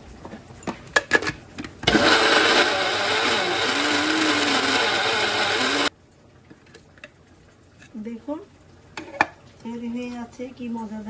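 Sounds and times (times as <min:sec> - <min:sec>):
electric blender motor running: 0:01.9 - 0:05.9.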